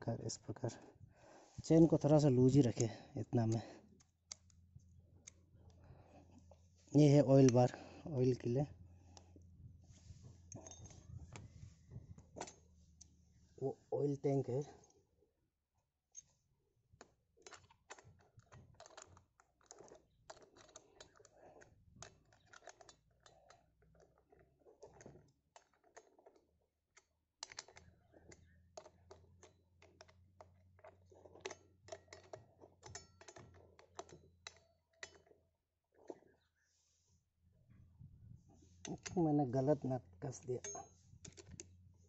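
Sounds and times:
small metal parts clicking: 17.4s - 35.4s, 40.3s - 41.8s.

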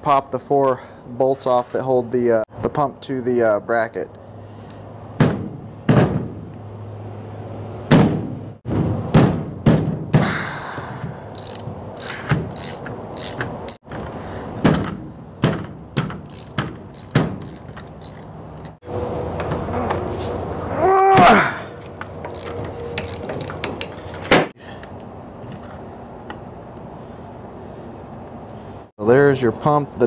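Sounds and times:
socket wrench clicking: 11.3s - 13.8s, 16.2s - 18.8s, 21.8s - 24.1s.

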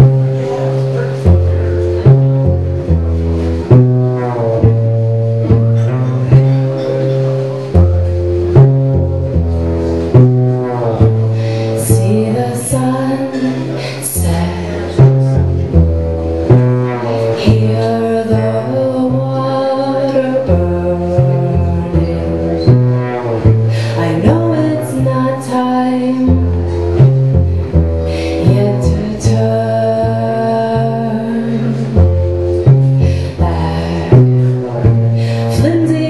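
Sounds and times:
cello plucked bass pattern: 0.0s - 36.0s
woman singing: 11.6s - 15.1s, 17.3s - 22.4s, 23.8s - 26.4s, 28.2s - 31.9s, 35.2s - 36.0s.

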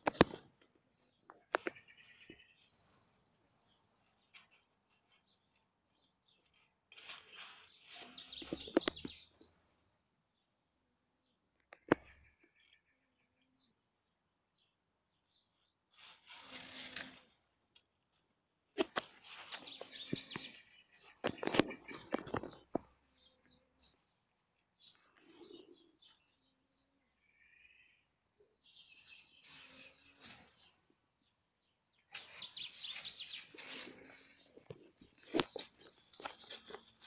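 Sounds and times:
dry leaves rustling and crackling: 32.1s - 37.0s.

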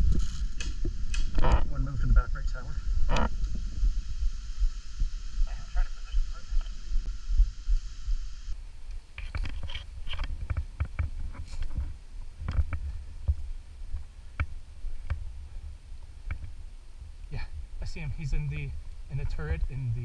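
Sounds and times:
low rumble: 0.0s - 8.6s.

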